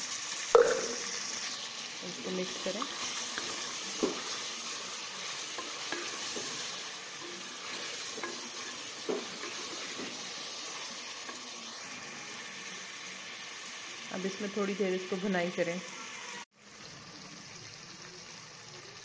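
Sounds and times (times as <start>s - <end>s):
meat sizzling in oil: 0.0s - 19.0s
wooden spoon scraping pot: 5.4s - 10.4s.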